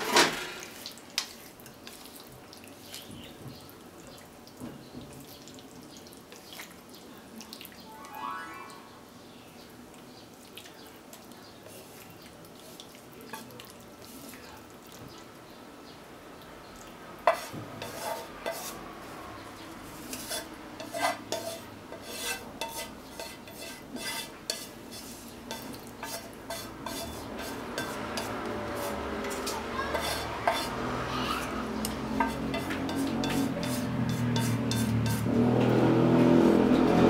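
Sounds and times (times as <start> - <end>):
utensil scraping frying pan: 0.0 - 0.9, 17.2 - 18.9, 19.8 - 35.7.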